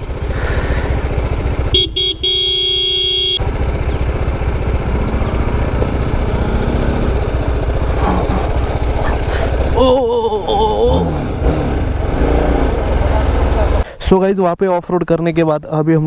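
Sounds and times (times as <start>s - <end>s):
motorcycle engine idling: 0.0s - 13.8s
vehicle horn toots: 1.6s - 3.5s.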